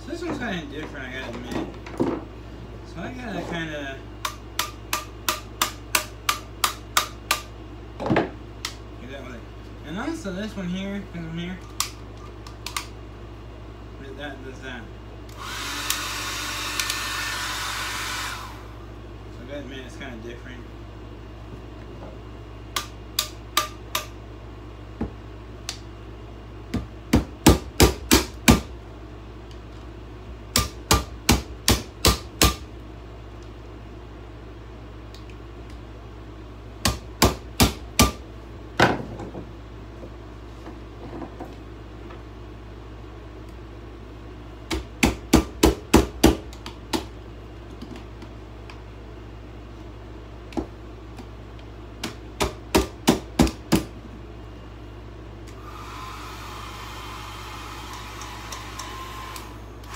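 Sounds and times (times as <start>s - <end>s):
hair dryer whirring: 15.3s - 18.9s, 55.5s - 59.9s.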